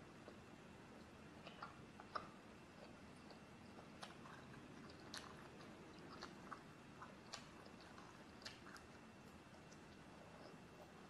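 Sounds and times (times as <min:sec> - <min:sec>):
faint chewing: 0:00.0 - 0:11.0.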